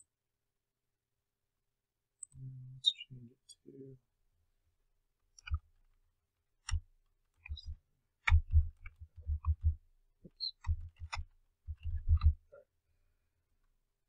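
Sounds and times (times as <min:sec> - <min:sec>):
keyboard typing: 0:06.6 - 0:12.4.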